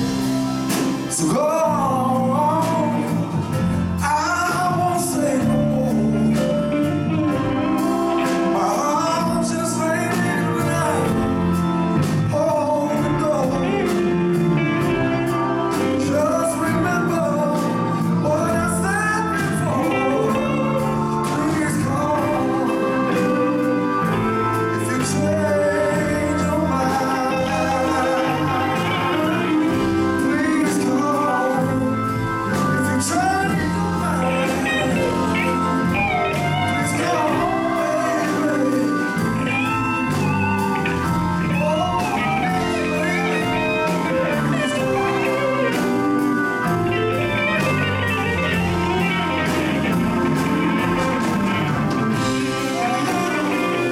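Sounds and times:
drums: 0.0 - 53.9
electric guitars: 0.0 - 53.9
man singing: 0.0 - 53.9
organ: 0.0 - 53.9.

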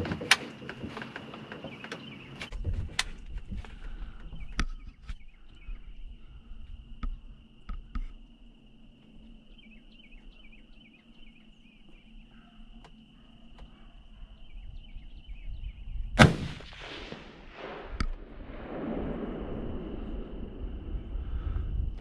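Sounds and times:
insect trill with chirps: 0.0 - 16.8, 17.4 - 22.0
gunshot with echo: 16.2 - 19.0
low rushing noise: 16.7 - 22.0.

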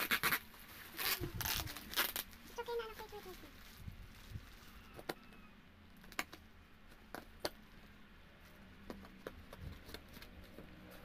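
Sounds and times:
blade slitting packing tape: 0.0 - 2.4
bubble wrap crinkling: 0.0 - 5.2.

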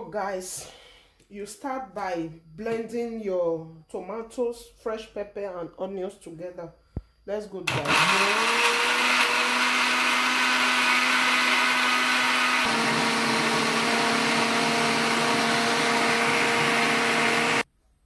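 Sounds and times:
blender running: 7.7 - 17.7.

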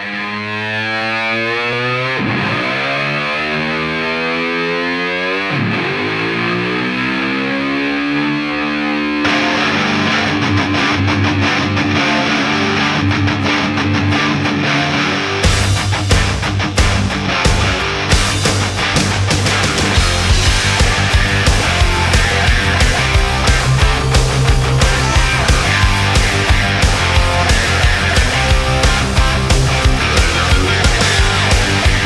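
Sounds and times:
distorted electric guitar: 0.0 - 32.0
heavy full band with steady beat: 14.8 - 32.0.

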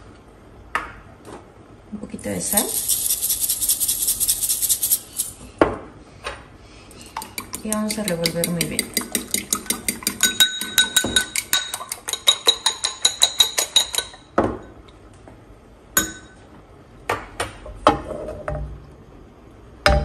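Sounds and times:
fork beating eggs in bowl: 2.5 - 5.4, 6.9 - 14.2.

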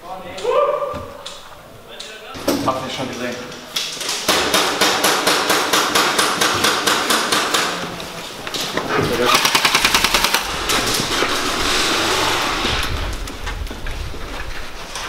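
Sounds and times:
airsoft rifles firing: 9.2 - 11.0.

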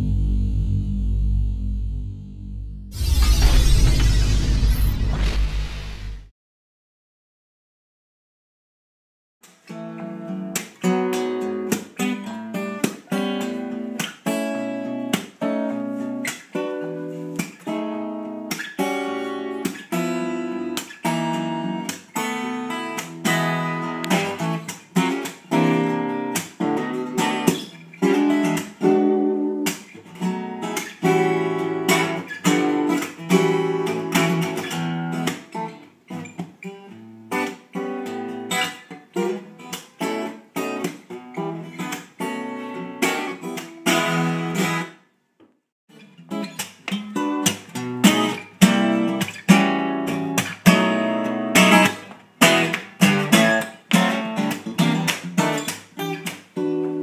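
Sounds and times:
acoustic guitar strumming chords: 9.8 - 35.5, 46.3 - 57.0.

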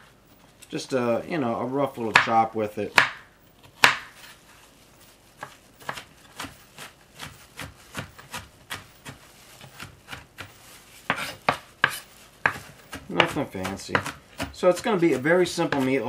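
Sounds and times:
knife chopping on wooden board: 2.1 - 4.2, 5.4 - 16.0.

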